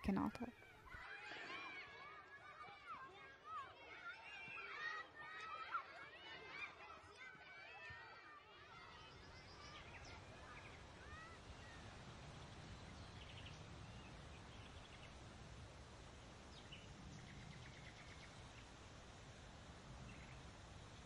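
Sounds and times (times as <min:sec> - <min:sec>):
soft bird calls and trills: 0:08.8 - 0:15.3, 0:16.4 - 0:18.8, 0:20.0 - 0:21.0
low wind rumble: 0:09.4 - 0:21.0.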